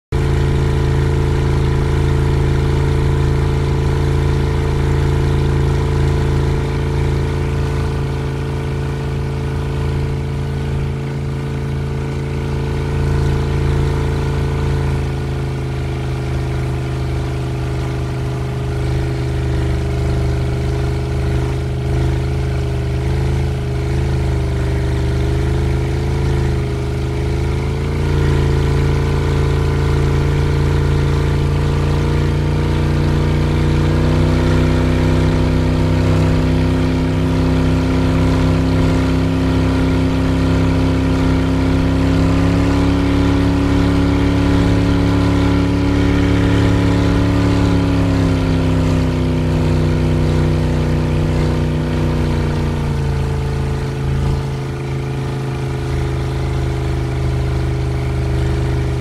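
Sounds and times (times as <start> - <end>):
boat motor running: 0.0 - 59.0.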